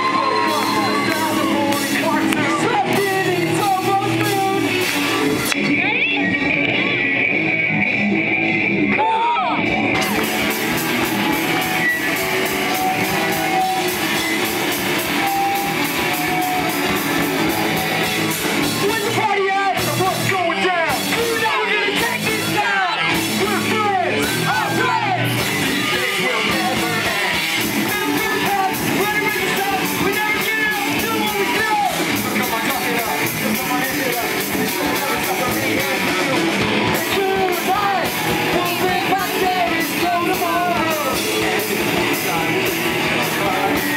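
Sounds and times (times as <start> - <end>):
drums and cymbals: 0.0 - 5.8, 9.8 - 43.9
pop punk band playing live: 0.0 - 43.9
sung vocals: 17.6 - 43.9.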